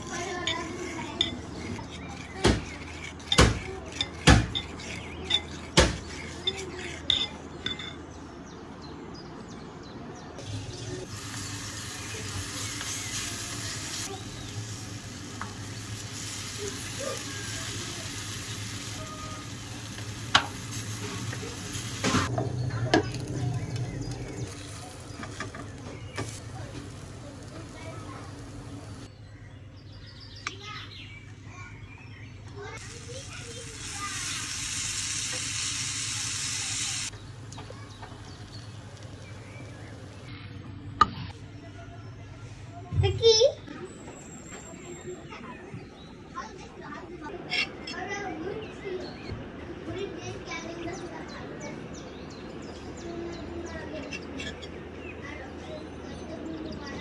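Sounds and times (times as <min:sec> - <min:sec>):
metal spoon stirring in a bowl: 0:00.0 - 0:08.0
batter sizzling in a frying pan: 0:10.4 - 0:22.3, 0:32.7 - 0:37.1.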